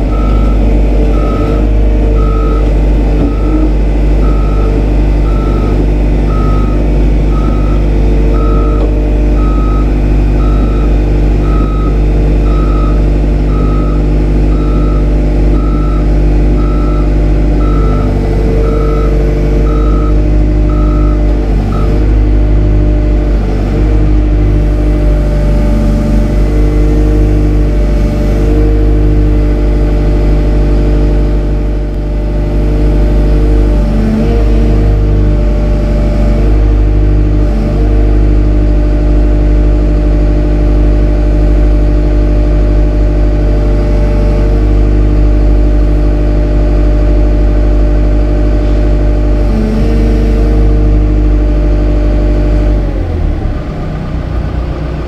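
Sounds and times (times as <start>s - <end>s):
warning beeper: 0.0s - 22.2s
excavator diesel engine and hydraulics: 0.0s - 55.0s.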